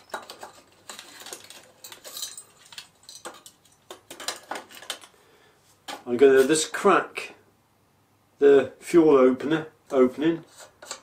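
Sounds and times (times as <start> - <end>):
light metallic clicks and scrapes: 10.4 - 11.0.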